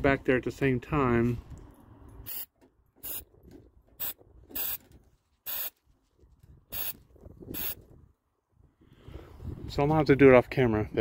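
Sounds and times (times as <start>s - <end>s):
aerosol can spraying hiss: 7.5s - 7.8s.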